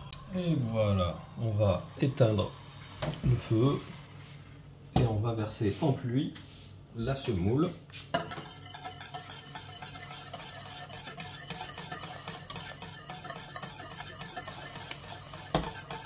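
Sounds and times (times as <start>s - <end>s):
wire whisk swishing in saucepan: 8.2s - 16.0s.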